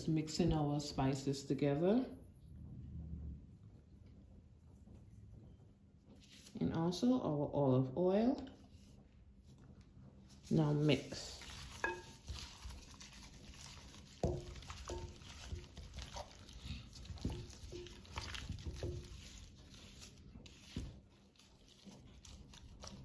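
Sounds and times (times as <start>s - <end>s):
meat squelching in a bowl: 10.4s - 23.0s.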